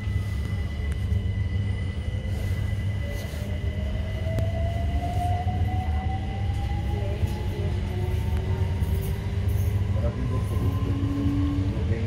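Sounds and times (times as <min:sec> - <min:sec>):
train running gear rumble: 0:00.0 - 0:12.0.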